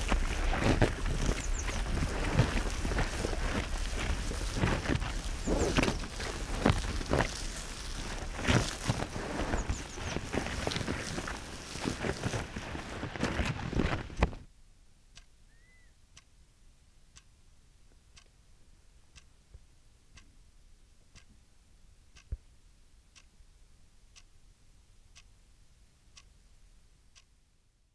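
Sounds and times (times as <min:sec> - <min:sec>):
loud crackling: 0:00.0 - 0:14.3
clock ticking: 0:19.1 - 0:19.3, 0:23.1 - 0:23.3, 0:24.1 - 0:24.3, 0:25.1 - 0:25.3, 0:26.2 - 0:26.4, 0:27.1 - 0:27.3.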